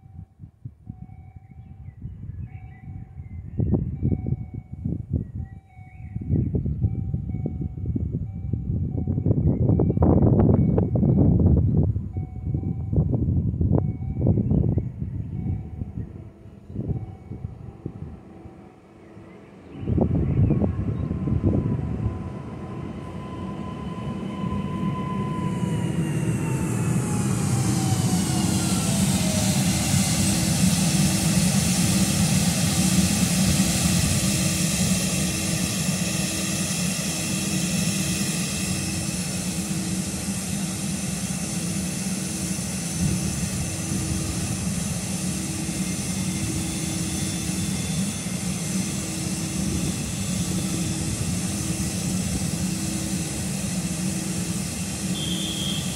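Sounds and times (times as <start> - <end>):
low pulsing tone: 1.0 - 55.9
train motor whine: 6.1 - 55.9
high-pitched electrical whine: 19.8 - 55.9.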